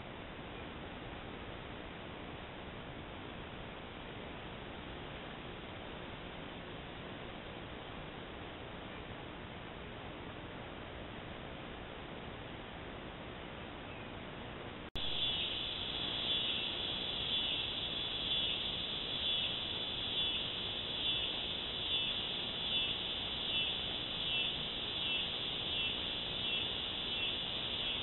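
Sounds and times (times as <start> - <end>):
microphone hiss: 0.0 - 28.0
high rhythmic insect chorus: 15.0 - 28.0.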